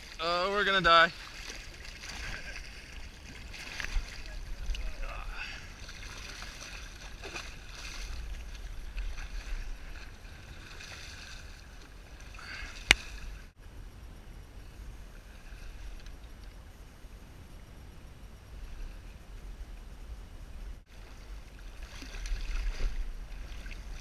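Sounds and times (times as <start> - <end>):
water slapping kayak hull: 0.0 - 13.6, 20.9 - 24.0
low rumble: 2.0 - 10.7.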